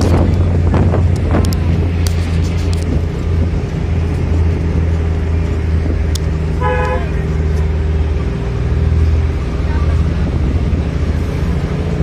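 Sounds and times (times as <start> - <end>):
vehicle engine and road drone: 0.0 - 12.0
vehicle horn toot: 6.6 - 7.2.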